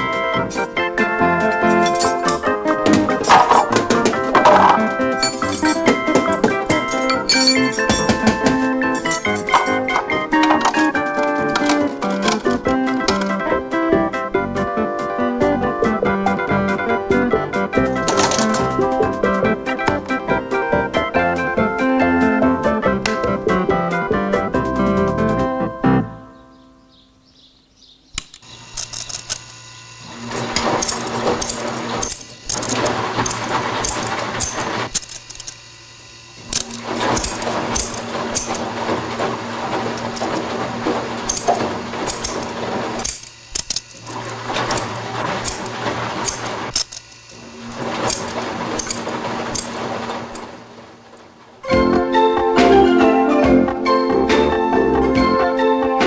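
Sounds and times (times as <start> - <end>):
scissor blades rattling: 0.0 - 13.4, 17.9 - 19.0, 28.2 - 29.6, 30.2 - 35.7, 36.4 - 39.2, 41.2 - 50.6
machine motor humming: 0.0 - 25.7, 28.2 - 54.7.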